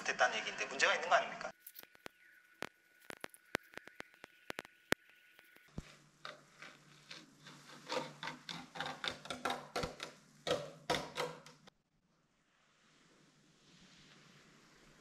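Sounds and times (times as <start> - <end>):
tape peeling crackles: 1.6 - 10.6
faint hiss: 12.2 - 15.0.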